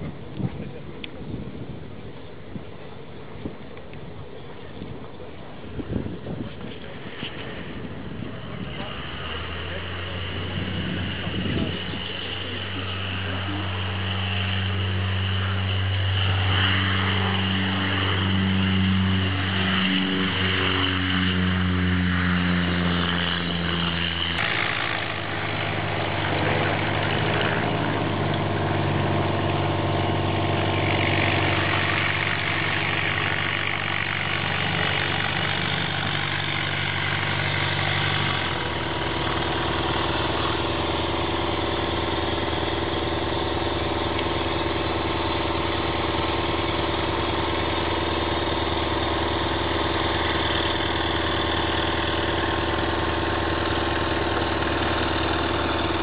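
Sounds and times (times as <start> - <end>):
propeller plane engine drone: 0.0 - 56.0.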